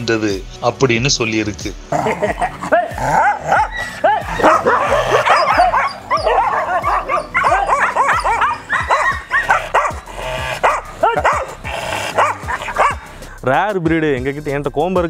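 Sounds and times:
dog barking rapidly: 0:02.0 - 0:13.2.

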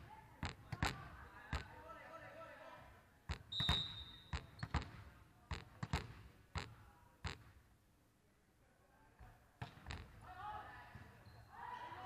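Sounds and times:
referee's whistle: 0:03.5 - 0:04.4.

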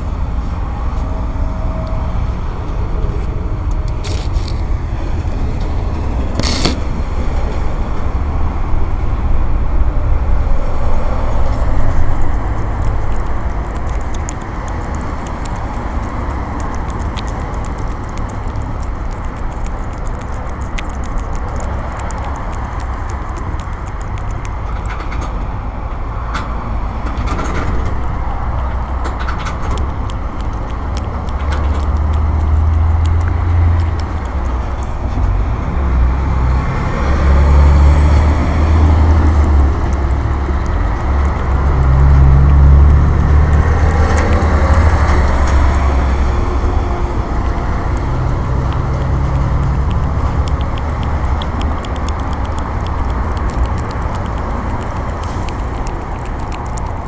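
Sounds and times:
cat chewing and lapping food: 0:02.6 - 0:57.0
teeth clicking against bowl: 0:11.4 - 0:25.5, 0:27.2 - 0:35.3, 0:38.2 - 0:57.0.

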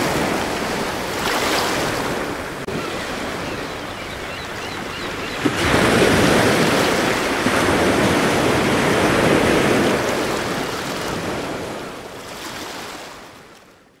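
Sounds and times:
ocean waves breaking: 0:00.0 - 0:13.6.

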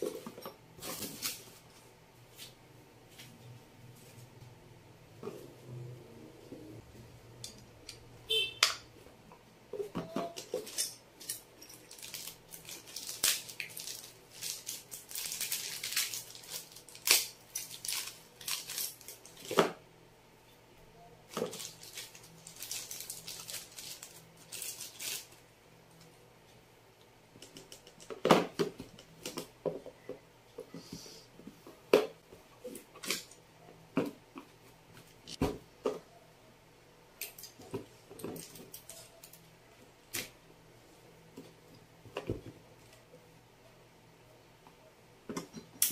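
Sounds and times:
plastic bag crinkling: 0:11.7 - 0:19.5, 0:21.3 - 0:25.4.

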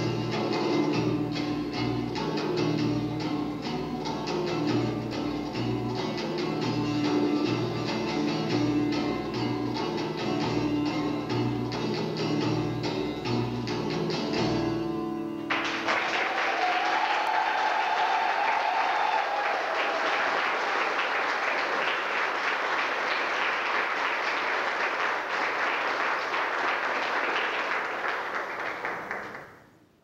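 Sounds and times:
crowd cheering: 0:15.5 - 0:29.6
audience applauding: 0:15.5 - 0:29.8.

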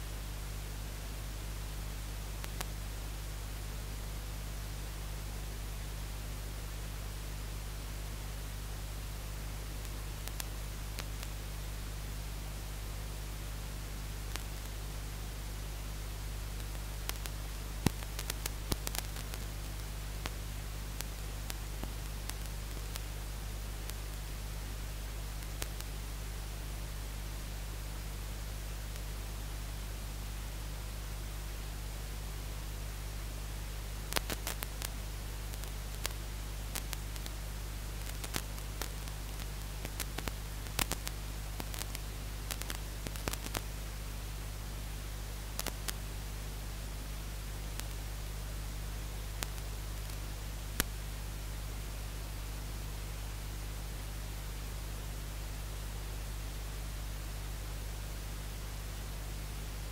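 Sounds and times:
low electrical hum: 0:00.0 - 0:59.9
static hiss: 0:00.0 - 0:59.9
sharp clicks: 0:16.6 - 0:20.4, 0:34.1 - 0:36.2, 0:38.0 - 0:43.7, 0:49.4 - 0:50.2.

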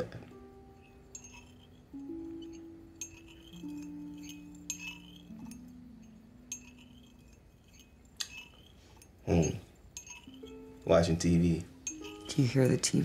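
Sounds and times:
low sustained film score notes: 0:00.0 - 0:08.6, 0:09.2 - 0:13.0
teaspoon clinking in teacup: 0:00.6 - 0:13.0.

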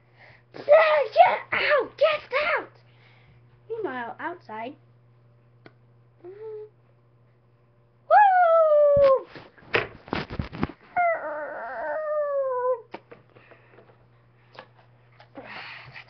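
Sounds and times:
long descending howls: 0:11.0 - 0:12.8.

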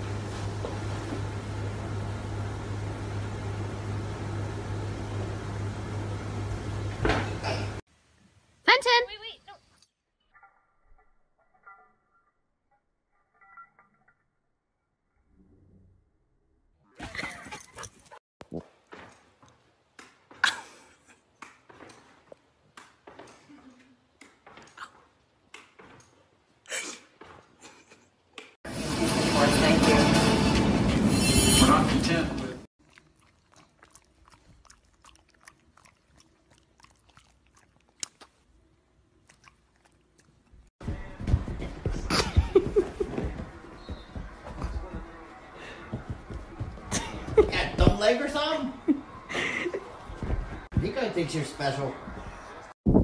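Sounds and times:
dog paws thumping and scrabbling: 0:40.8 - 0:48.2, 0:50.0 - 0:51.2.

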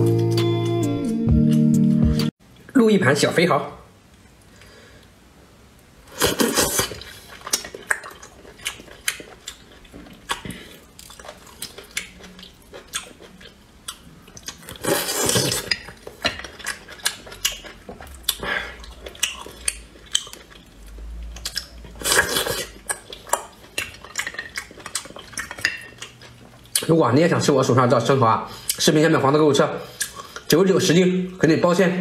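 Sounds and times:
loud slurps: 0:06.1 - 0:07.2
chewing and lip-smacking: 0:06.2 - 0:27.0, 0:29.9 - 0:30.6.

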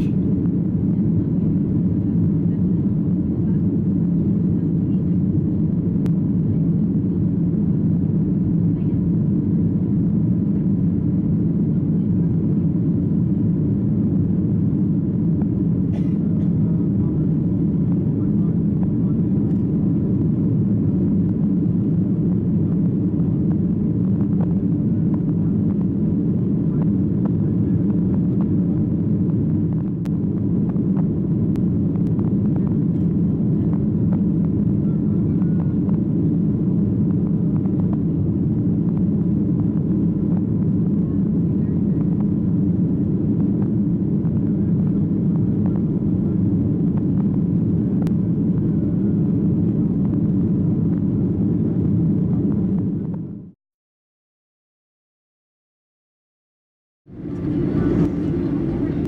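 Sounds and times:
jet engines and airflow rumble: 0:00.0 - 0:53.6, 0:57.1 - 0:59.0
faint steady whine: 0:57.1 - 0:59.0.

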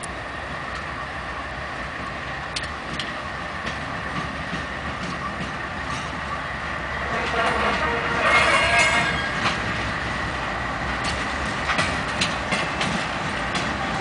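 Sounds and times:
diesel locomotive engine: 0:00.0 - 0:14.0
wheels clicking on rail joints: 0:02.0 - 0:14.0.

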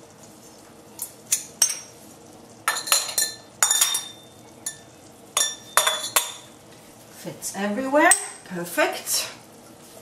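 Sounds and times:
metal funnel clinking on glass jars: 0:02.7 - 0:04.8, 0:05.4 - 0:06.4.

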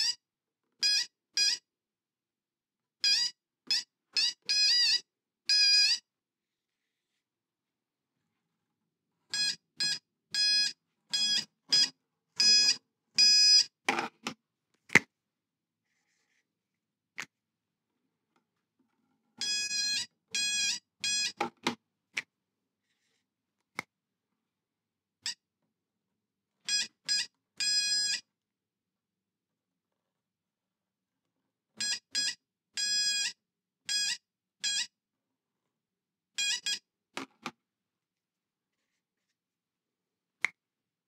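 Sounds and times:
metal detector beeping: 0:09.3 - 0:13.8, 0:19.4 - 0:21.6, 0:26.7 - 0:28.3, 0:31.8 - 0:34.9, 0:36.4 - 0:36.9.

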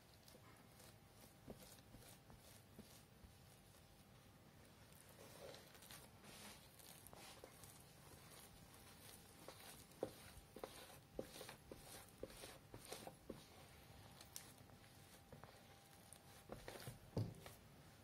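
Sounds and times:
hands shaping dough: 0:00.0 - 0:18.0.

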